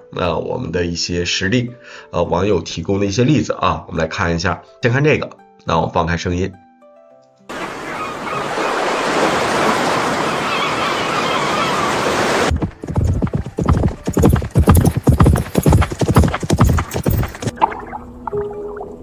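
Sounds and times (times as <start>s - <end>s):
horse galloping hoofbeats: 12.5s - 17.6s.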